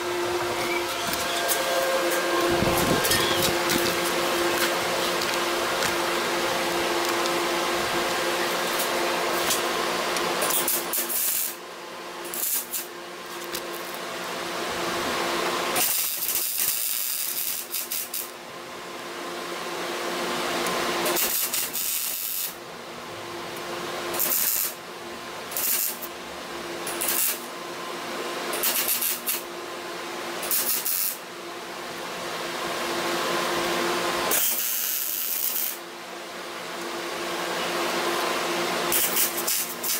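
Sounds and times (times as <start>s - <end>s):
steady welder hum: 0.0s - 39.9s
welding arc bursts: 10.4s - 11.6s, 12.3s - 12.9s, 15.8s - 18.3s, 21.1s - 22.6s, 24.2s - 24.8s, 25.5s - 26.1s, 27.0s - 27.5s, 28.6s - 29.4s, 30.5s - 31.2s, 34.3s - 35.8s, 38.9s - 39.9s.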